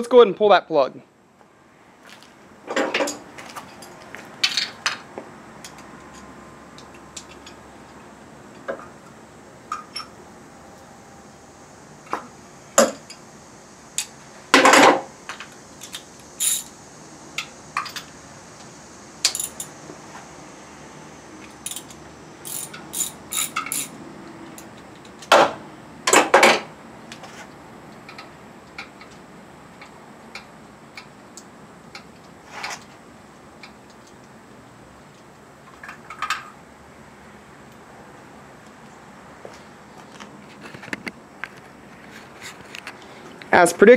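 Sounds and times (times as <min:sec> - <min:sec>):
metal tools clinking: 0:15.8 - 0:16.7, 0:19.2 - 0:19.8, 0:21.7 - 0:24.0.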